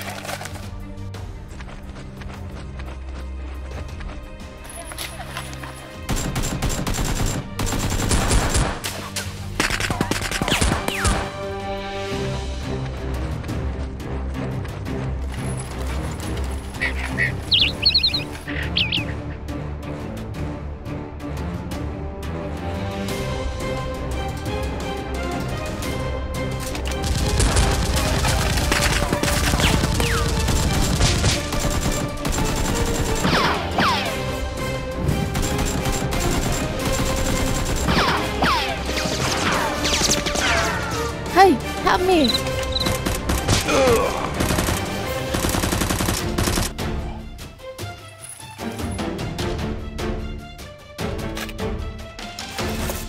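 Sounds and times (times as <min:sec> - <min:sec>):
background music: 0:00.0 - 0:53.0
rapid gunfire sound effects: 0:06.1 - 0:08.8, 0:27.0 - 0:34.0, 0:35.3 - 0:40.6, 0:42.8 - 0:46.8.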